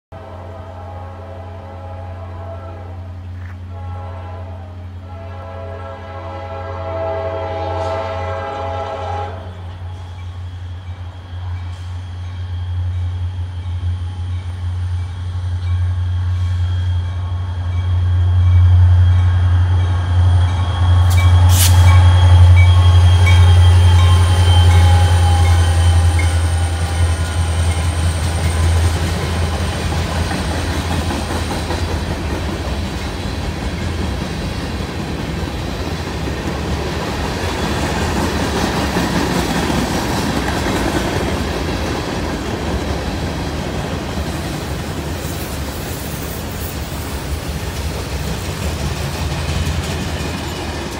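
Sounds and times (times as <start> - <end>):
train engine rumble: 0.1 - 50.9.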